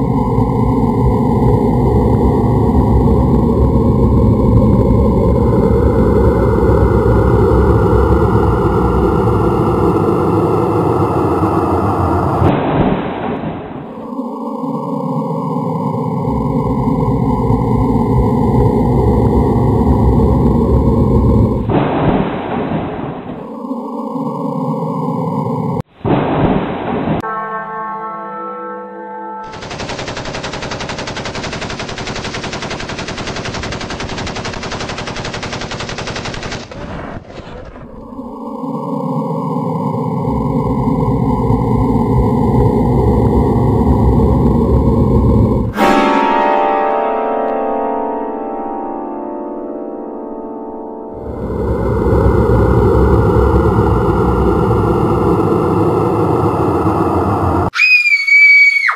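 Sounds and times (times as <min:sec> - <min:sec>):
held chord of steady tones: 0:00.0 - 0:12.5, 0:13.9 - 0:21.7, 0:23.4 - 0:25.8, 0:27.2 - 0:32.6, 0:38.1 - 0:57.7
rapid machine-gun fire: 0:29.5 - 0:37.7
high-pitched scream: 0:51.2 - 0:58.9.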